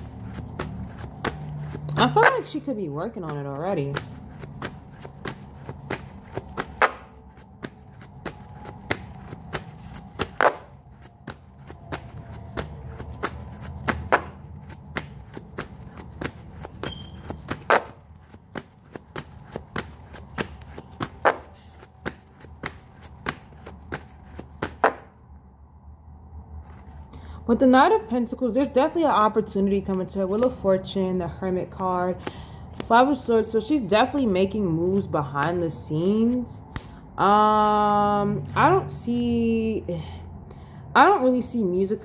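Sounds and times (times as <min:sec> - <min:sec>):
cards slapping: 0:00.0 - 0:02.6, 0:03.2 - 0:25.1, 0:36.2 - 0:37.0
cards being shuffled: 0:00.0 - 0:25.1.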